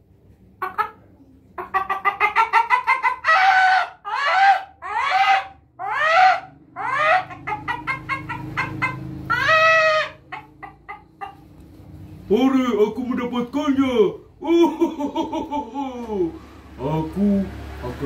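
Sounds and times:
man imitating chicken clucking: 0.6s - 11.4s, 14.2s - 16.4s.

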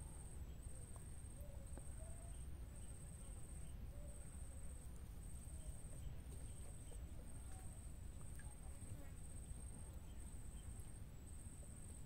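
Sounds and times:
faint bird chirps: 0.0s - 4.8s.

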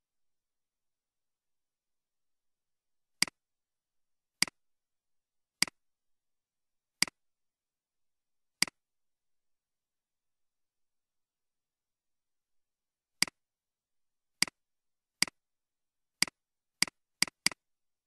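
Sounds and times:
mouse button clicks: 16.2s - 17.6s.

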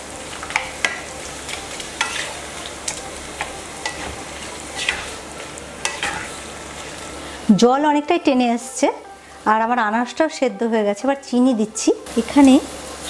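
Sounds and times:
fruit sizzling in a wok: 0.0s - 13.0s
wooden spatula scraping a pan: 3.8s - 6.4s.

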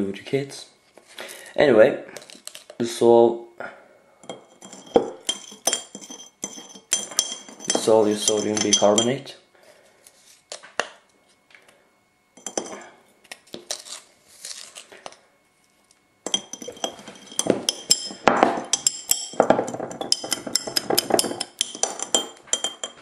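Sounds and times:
metal spoon clinking on glass: 4.3s - 9.2s, 12.4s - 12.8s, 16.3s - 23.0s.

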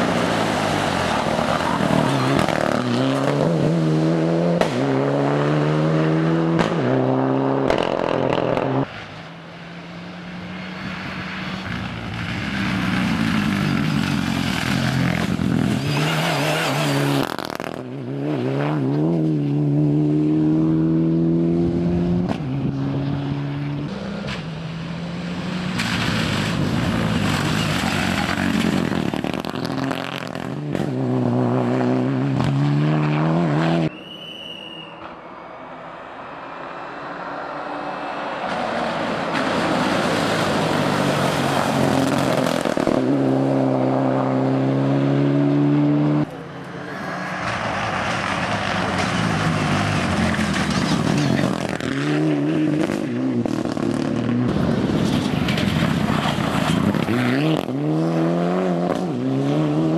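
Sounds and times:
rally car engine revving: 0.0s - 8.9s, 10.3s - 33.9s, 38.6s - 46.4s, 47.0s - 59.9s.

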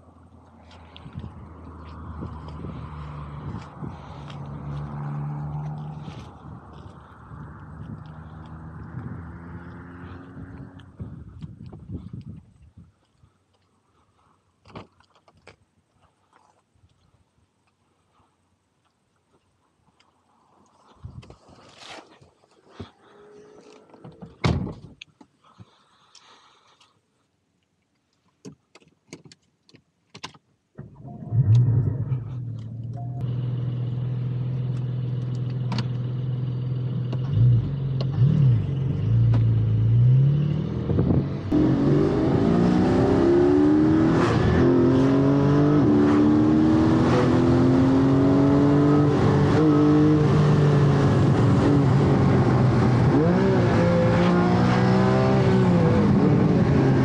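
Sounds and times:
car engine starting and running: 0.0s - 11.7s, 30.8s - 57.0s.

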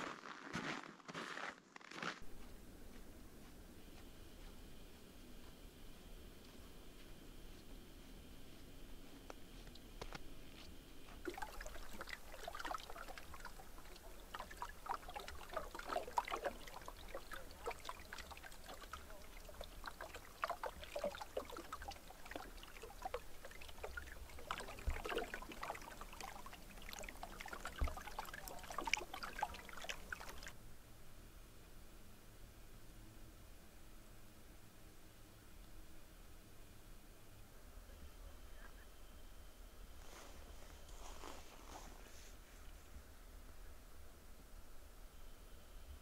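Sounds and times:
small waves lapping on shore: 11.2s - 30.6s.

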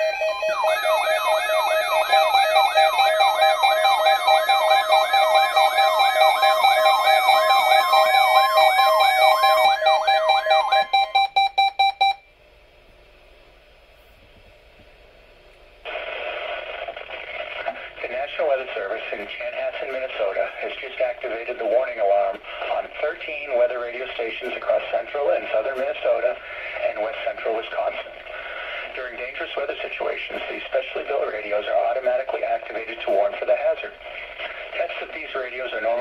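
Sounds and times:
steady beeps: 0.0s - 12.2s
warbling weather radio alarms: 0.0s - 12.2s
radio broadcast hiss: 15.8s - 36.0s.

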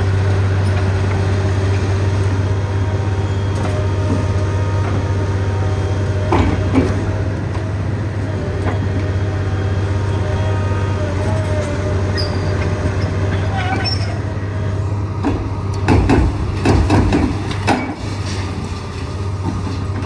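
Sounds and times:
excavator diesel engine droning: 0.0s - 20.0s
sharp knocks: 15.2s - 17.8s.

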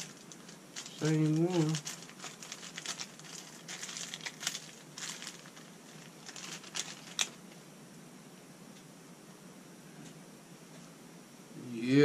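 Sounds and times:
packaging crinkling: 0.0s - 7.6s.

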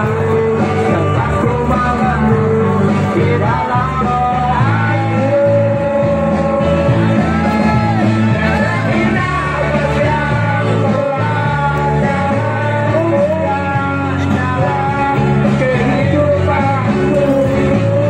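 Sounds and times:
amplified band music: 0.0s - 18.0s
man singing into microphone: 0.0s - 18.0s.

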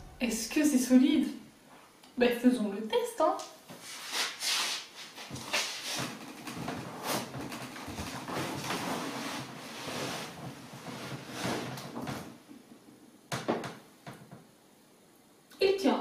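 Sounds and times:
cardboard rustling and scraping: 5.2s - 12.3s.

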